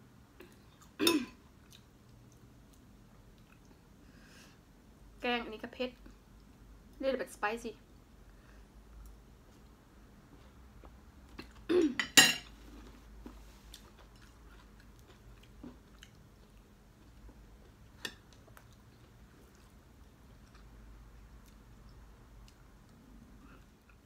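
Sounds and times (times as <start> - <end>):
quiet chewing: 0.4 - 4.0, 12.6 - 24.0.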